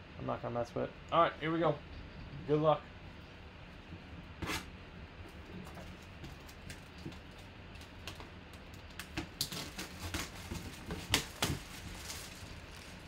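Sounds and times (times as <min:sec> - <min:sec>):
plastic wrap tearing and crinkling: 0:05.9 - 0:13.0.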